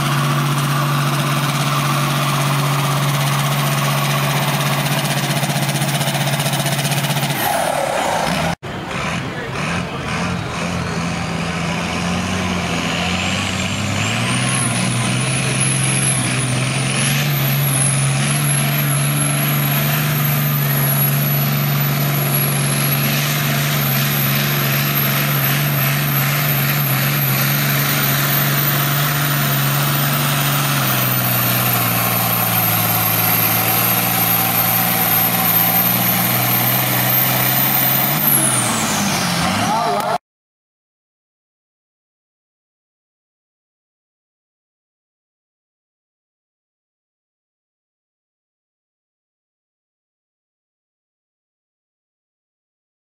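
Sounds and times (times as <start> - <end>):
diesel tractor at full throttle: 0.0 - 40.2
high turbo whistle: 26.5 - 38.7.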